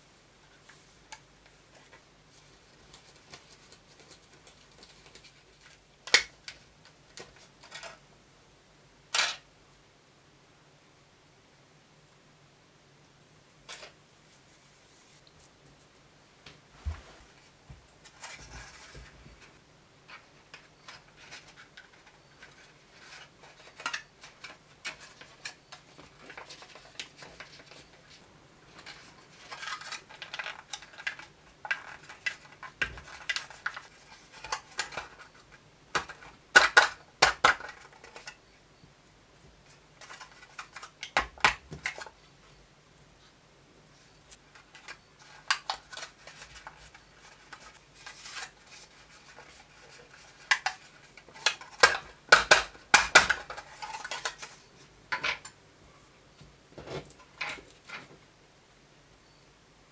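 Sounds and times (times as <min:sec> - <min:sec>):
plastic tray clicks and crinkles: 0:28.8 - 0:38.4, 0:39.7 - 0:42.2, 0:44.3 - 0:55.5.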